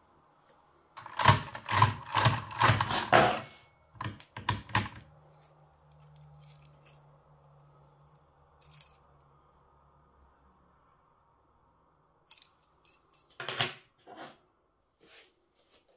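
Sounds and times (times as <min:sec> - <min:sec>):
keys clinking: 0:04.8 - 0:09.2, 0:12.3 - 0:13.8.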